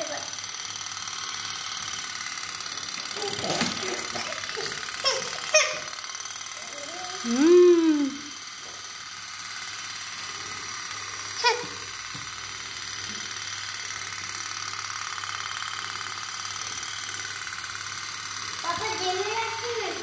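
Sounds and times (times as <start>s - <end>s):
child squeaking: 5.0s - 5.9s.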